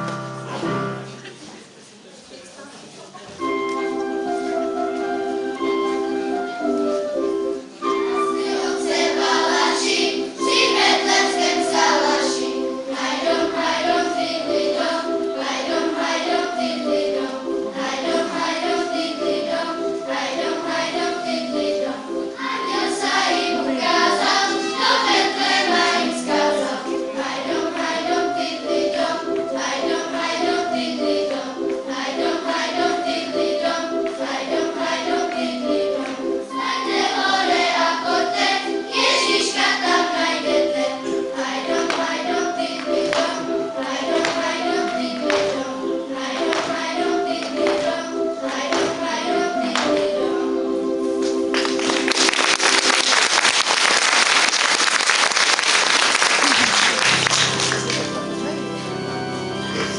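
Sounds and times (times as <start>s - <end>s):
instrumental accompaniment: 3.3s - 59.9s
children singing: 7.8s - 51.0s.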